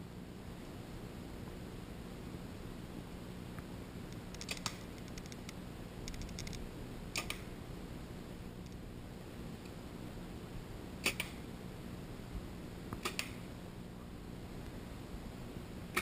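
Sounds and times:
faint ticks: 3.6s - 6.6s.

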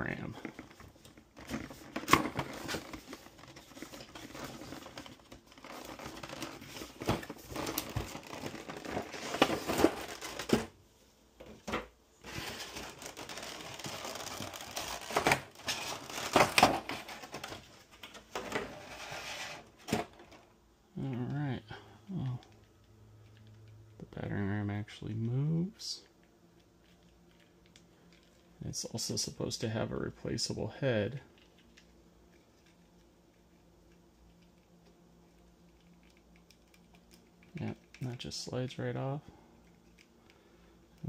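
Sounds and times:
plastic blister tray crinkling: 0.4s - 10.7s, 12.2s - 19.1s.

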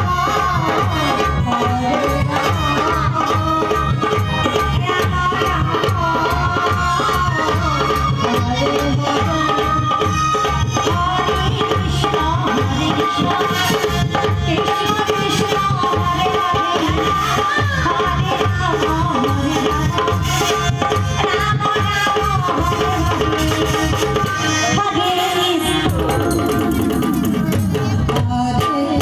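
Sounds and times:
hand drum beaten in quick rhythm: 25.7s - 29.0s.

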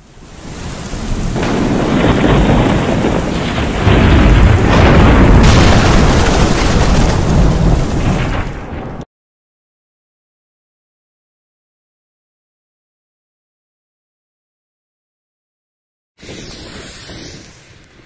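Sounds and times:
thunder rumbling: 0.0s - 9.0s
heavy rain: 0.0s - 9.1s.

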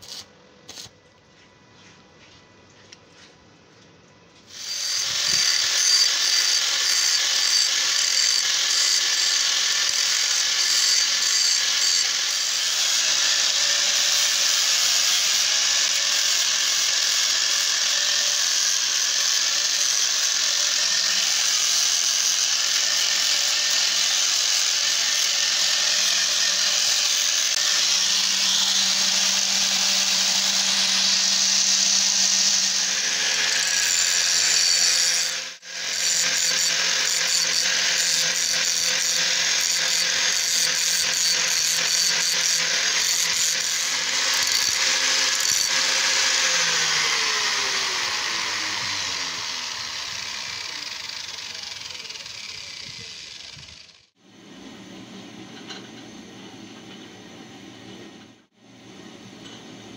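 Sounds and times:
angle grinder grinding steel: 4.5s - 54.1s.

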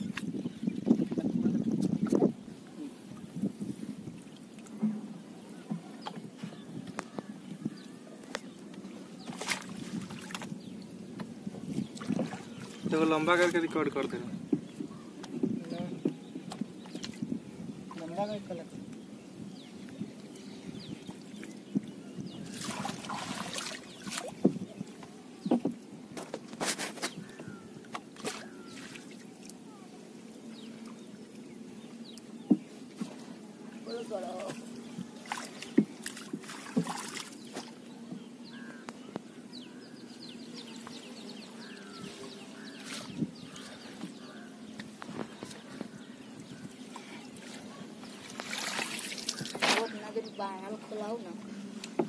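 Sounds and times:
water splashing and dripping: 9.2s - 10.6s, 11.7s - 13.7s, 22.4s - 24.8s, 34.4s - 37.7s, 47.4s - 49.9s
water splashing and sloshing: 9.2s - 18.6s, 20.9s - 29.8s, 30.6s - 38.8s, 41.6s - 52.0s
bird chirping: 37.0s - 48.3s.

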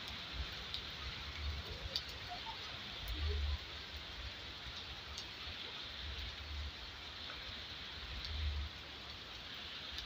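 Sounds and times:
rain on wet ground: 0.0s - 10.0s.

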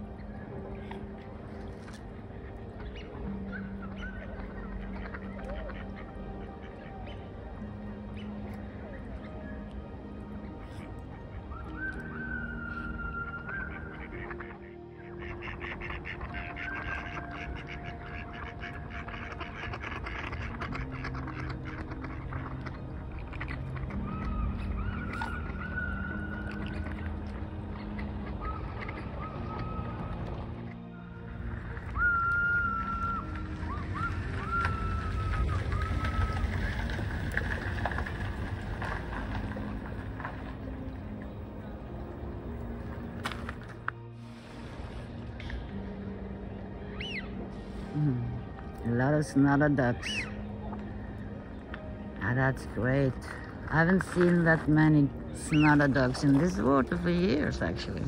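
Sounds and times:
ducks quacking: 0.0s - 41.0s, 46.9s - 48.4s, 49.0s - 58.0s
whistled notes: 11.4s - 14.0s, 28.4s - 37.1s, 46.9s - 47.4s, 50.0s - 50.8s
steady low rumble: 17.5s - 58.0s.

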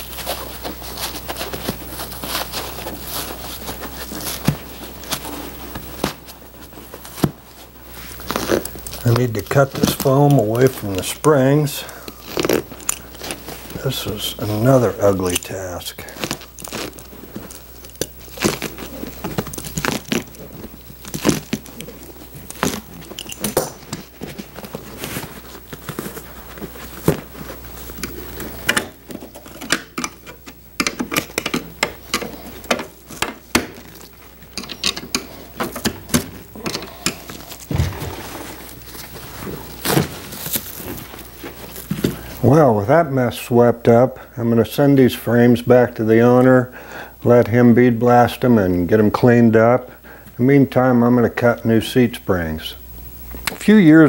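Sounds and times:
foam tearing and crackling: 0.0s - 42.6s
tools scraping and clicking on springs: 34.5s - 37.7s.

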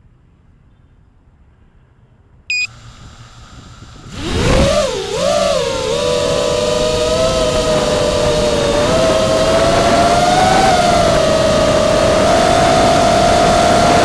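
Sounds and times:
short electronic beep: 2.5s - 2.8s
drone motors whining: 2.5s - 14.0s.

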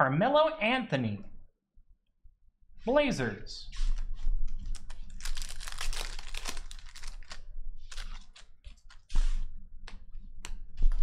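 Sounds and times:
cards rustling: 3.8s - 10.6s
foil wrapper tearing and crinkling: 4.6s - 9.1s.

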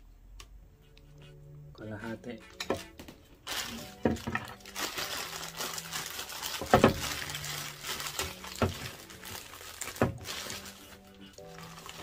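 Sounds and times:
plastic bag crinkling: 3.4s - 12.0s.

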